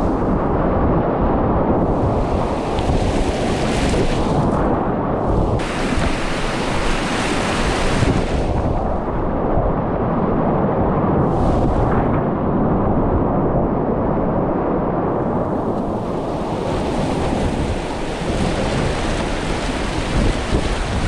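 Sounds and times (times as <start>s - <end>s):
whitewater rapids rushing: 5.6s - 8.3s, 15.9s - 21.0s.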